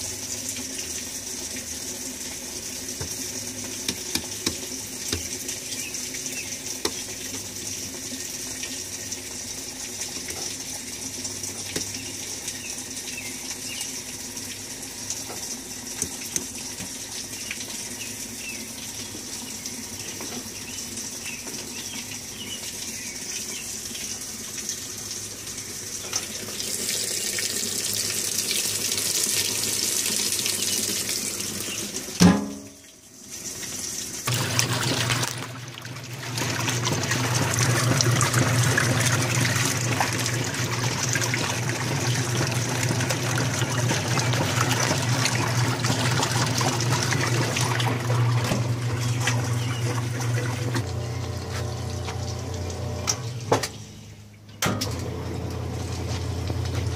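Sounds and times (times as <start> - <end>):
water rushing into washer tub: 0.0 - 53.9, 54.7 - 56.9
faint motor hum: 33.1 - 56.9.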